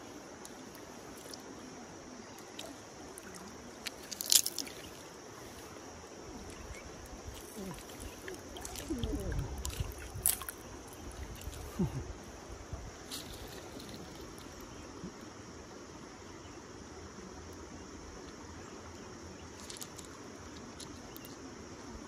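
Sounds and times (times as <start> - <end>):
water sloshing and gurgling: 0.4 - 15.1.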